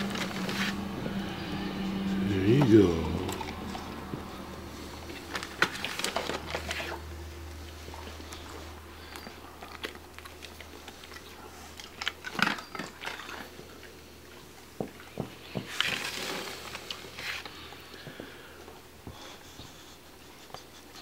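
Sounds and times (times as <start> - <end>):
dog crunching a hard treat: 8.0 - 13.9.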